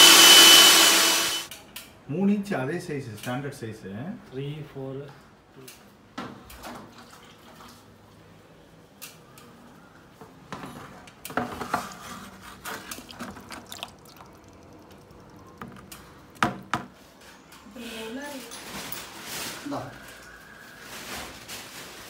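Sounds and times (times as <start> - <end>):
water splashing and dripping: 6.6 - 7.9, 12.5 - 16.6.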